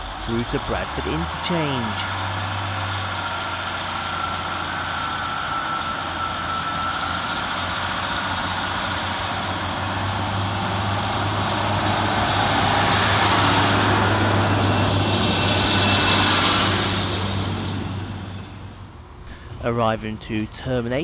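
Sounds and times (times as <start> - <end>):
train diesel engine hum: 0.0 - 21.0
train rail and running noise: 0.0 - 21.0
thin squeal: 2.0 - 9.0.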